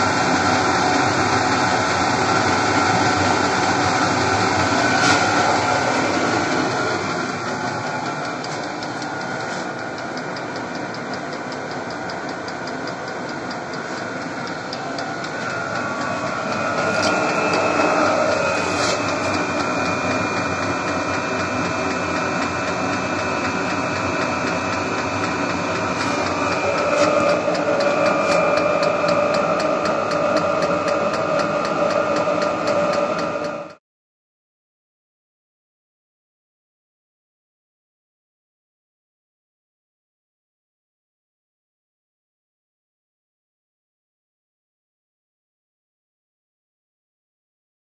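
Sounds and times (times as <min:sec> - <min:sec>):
heater fans whirring: 0:00.0 - 0:33.8
fuel pump ticking: 0:01.0 - 0:33.8.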